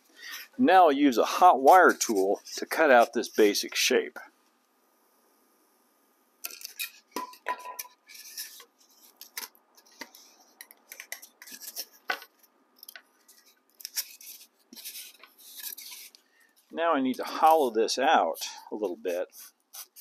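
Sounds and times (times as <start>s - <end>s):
foam scraping and rubbing: 1.2s - 3.6s, 13.3s - 16.2s, 18.8s - 20.0s.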